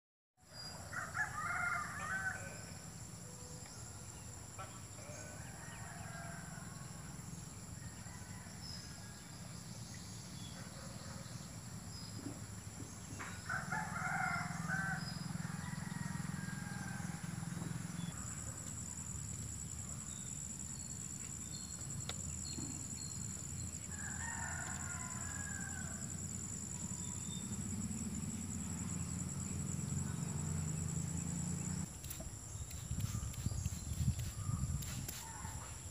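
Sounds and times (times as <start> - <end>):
rooster crowing: 0.7 - 2.8, 5.0 - 7.2, 7.8 - 9.3, 13.4 - 17.6, 23.9 - 26.4
high insect drone: 11.3 - 35.9.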